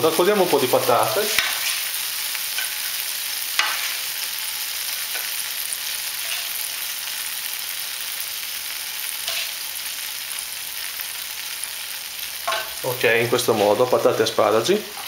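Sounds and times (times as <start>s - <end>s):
fish sizzling in frying pan: 0.0s - 15.0s
spoon clinking against pan: 12.5s - 12.8s.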